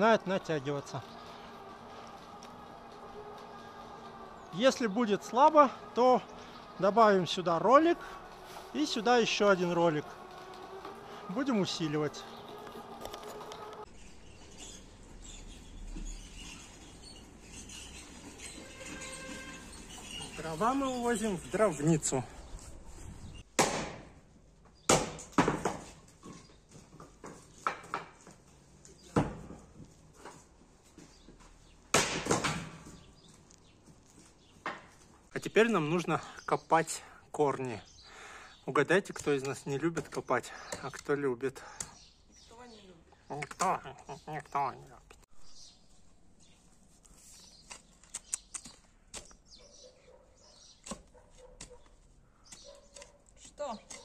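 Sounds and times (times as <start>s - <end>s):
axe chopping wood: 23.5s - 24.2s, 24.8s - 26.0s, 31.9s - 32.9s, 50.8s - 51.8s.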